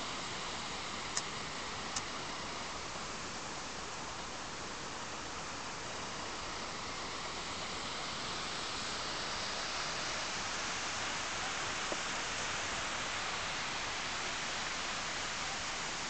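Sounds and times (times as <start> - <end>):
waterfall roaring: 0.0 - 16.0.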